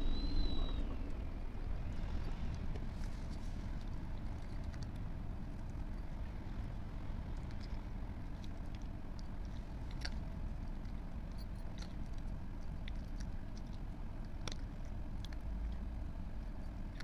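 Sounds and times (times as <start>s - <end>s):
steady low rumble: 0.0s - 17.0s
cat crunching dry kibble: 2.8s - 15.8s.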